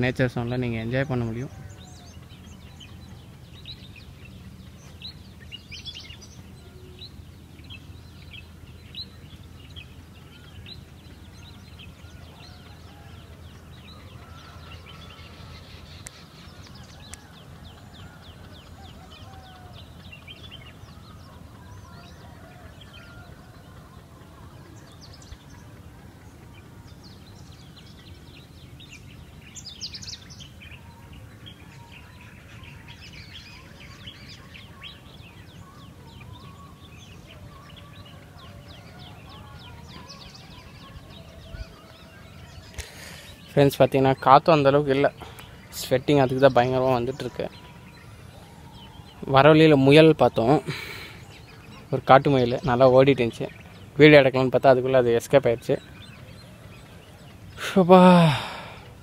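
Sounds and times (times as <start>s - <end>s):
birds chirping and whistling: 0.0s - 59.0s.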